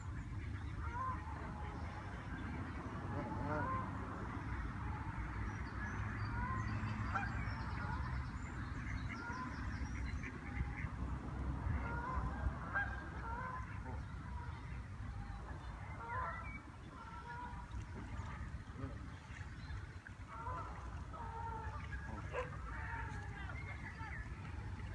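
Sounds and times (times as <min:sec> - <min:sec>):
geese honking: 0:00.5 - 0:05.3, 0:11.7 - 0:14.8, 0:15.8 - 0:19.4, 0:20.3 - 0:24.9.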